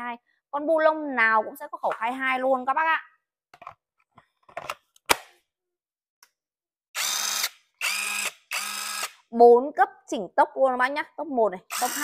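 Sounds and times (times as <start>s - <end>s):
impact wrench motor running: 7.0s - 9.2s, 11.7s - 12.0s.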